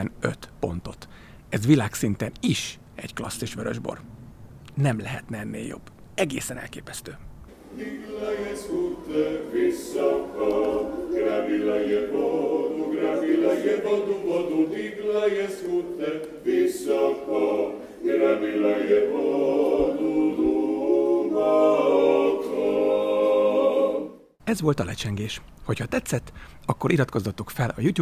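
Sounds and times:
a cappella choir singing: 7.5s - 24.4s.

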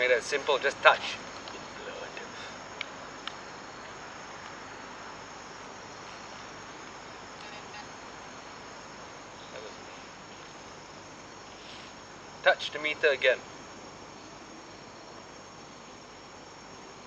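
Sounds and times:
night insects chorus: 0.0s - 17.0s.

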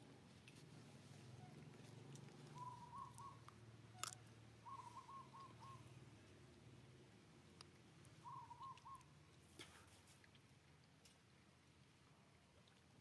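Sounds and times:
faint bird call: 2.5s - 5.9s, 8.2s - 9.1s.

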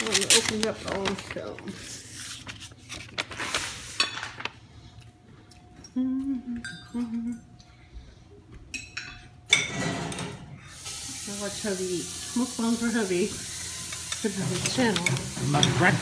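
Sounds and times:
dishes and cutlery clinking: 8.7s - 10.4s, 13.9s - 16.0s.

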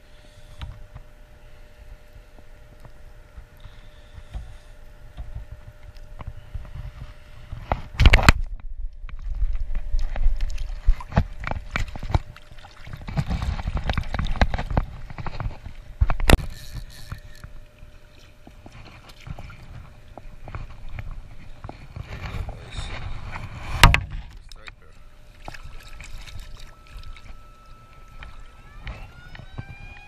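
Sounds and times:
water sloshing and splashing: 1.8s - 30.0s
fish splashing: 9.1s - 30.0s.

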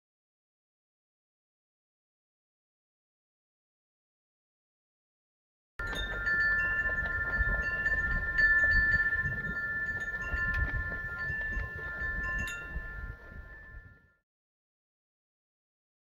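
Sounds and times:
wind rumble on microphone: 5.8s - 14.1s
wind chimes ringing: 5.8s - 14.2s.

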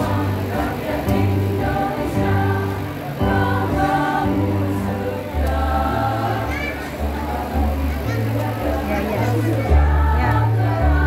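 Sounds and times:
electronic keyboard: 0.0s - 11.0s
women's choir singing: 0.0s - 11.0s.

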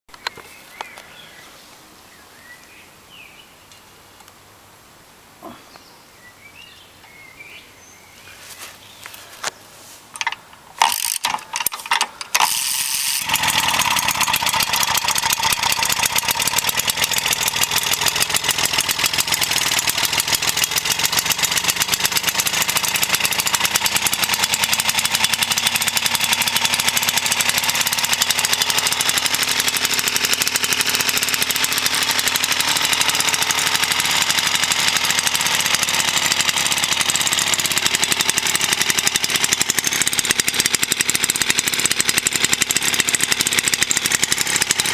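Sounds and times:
lawnmower engine running: 10.1s - 44.9s.

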